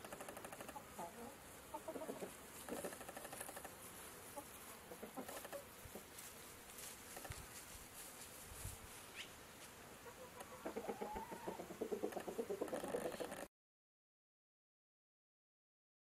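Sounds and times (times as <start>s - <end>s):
chickens clucking: 0.0s - 6.2s, 10.0s - 13.5s.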